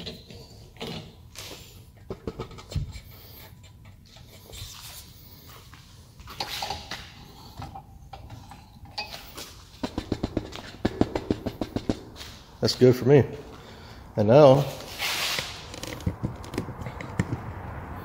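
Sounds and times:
heavy thump: 0:09.8 - 0:12.4.

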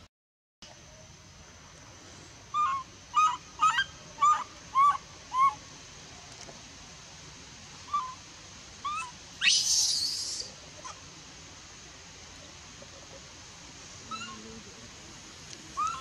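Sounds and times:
baby monkey harsh cry: 0:02.5 - 0:05.6, 0:07.9 - 0:08.2, 0:08.8 - 0:11.0, 0:14.1 - 0:14.4, 0:15.8 - 0:16.0
baby monkey whimpering: 0:02.6 - 0:05.6, 0:07.9 - 0:08.2, 0:08.8 - 0:11.0, 0:14.1 - 0:14.4, 0:15.8 - 0:16.0.

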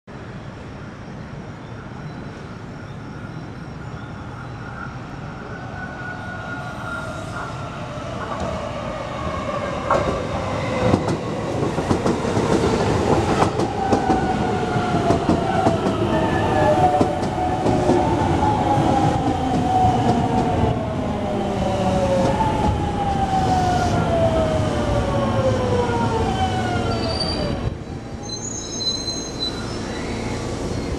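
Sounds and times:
train wheels on rails: 0:09.6 - 0:24.9
train braking: 0:26.0 - 0:30.9.

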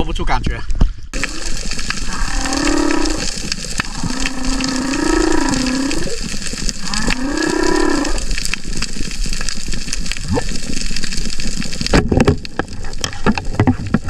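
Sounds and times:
whale song low calls: 0:01.2 - 0:08.4
water hiss: 0:01.2 - 0:11.9.

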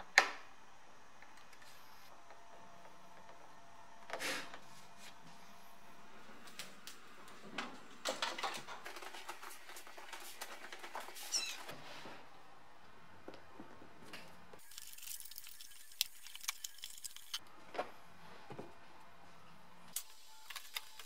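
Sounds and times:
plastic parts clicking and knocking: 0:08.0 - 0:11.2.

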